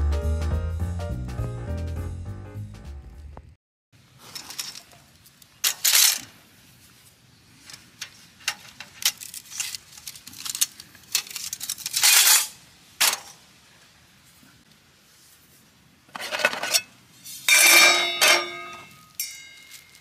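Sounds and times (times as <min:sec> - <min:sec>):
utensils and dishes clinking: 0:17.5 - 0:20.0.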